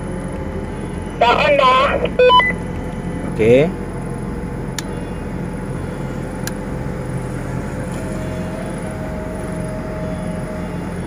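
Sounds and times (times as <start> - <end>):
air conditioner unit humming: 0.0 - 11.0
higher tone: 1.1 - 2.6, 7.7 - 11.0.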